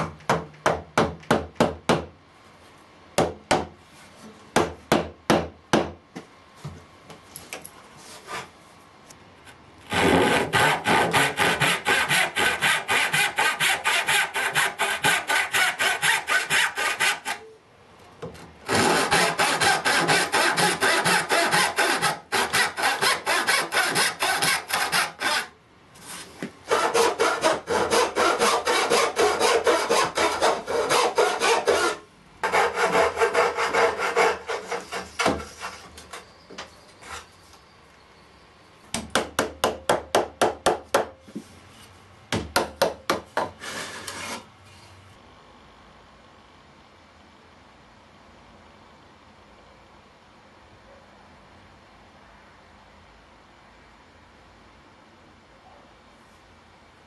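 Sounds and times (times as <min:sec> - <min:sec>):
handsaw cutting wood: 0:09.9 - 0:17.4, 0:18.7 - 0:25.5, 0:26.7 - 0:35.8.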